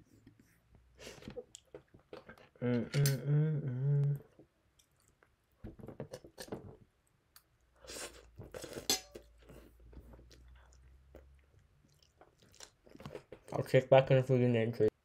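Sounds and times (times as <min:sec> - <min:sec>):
hummed voice sound: 0:02.6 - 0:04.4
person chewing crunchy food: 0:07.3 - 0:13.6.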